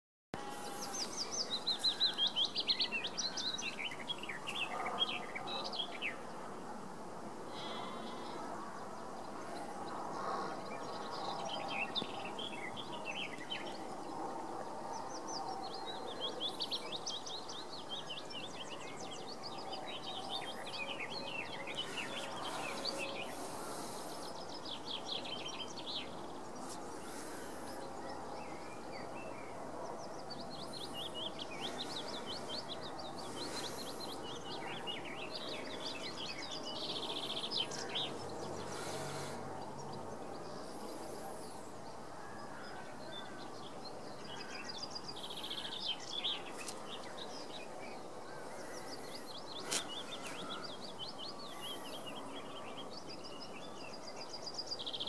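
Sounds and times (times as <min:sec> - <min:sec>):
countryside hum: 0:00.4 - 0:05.4, 0:18.8 - 0:42.2, 0:44.4 - 0:53.4
songbirds chirping: 0:00.4 - 0:55.0.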